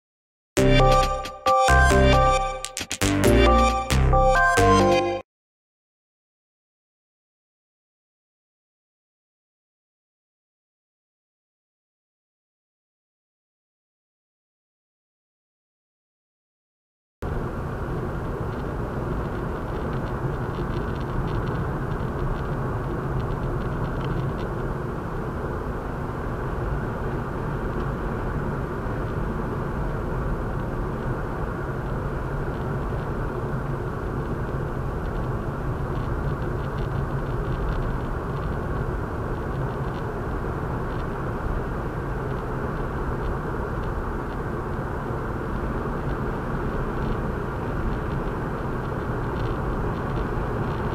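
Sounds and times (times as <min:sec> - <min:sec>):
car engine: 0:17.2 - 0:50.9
tyres droning on road: 0:17.2 - 0:50.9.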